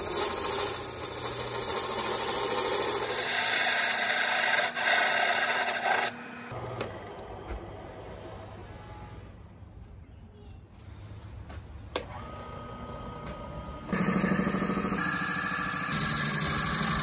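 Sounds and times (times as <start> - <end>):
spade bit boring into wood: 0.0 - 6.1, 14.6 - 17.0
wood lathe running: 0.0 - 6.9, 13.9 - 17.0.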